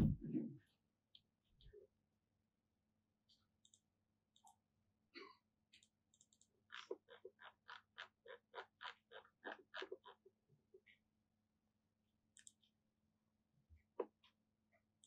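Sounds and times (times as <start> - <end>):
computer mouse clicks: 3.6 - 3.8, 5.8 - 6.9, 12.4 - 12.7.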